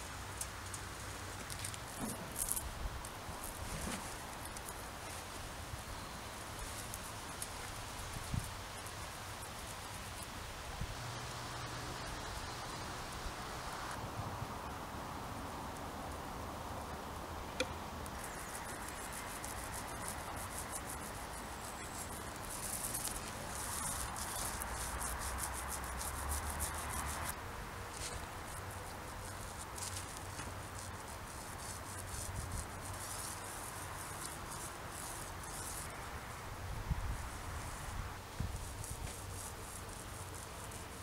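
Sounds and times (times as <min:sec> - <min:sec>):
paint roller sticky crackle: 0:00.3 - 0:05.4, 0:06.4 - 0:10.3, 0:18.0 - 0:36.3, 0:37.2 - 0:41.0.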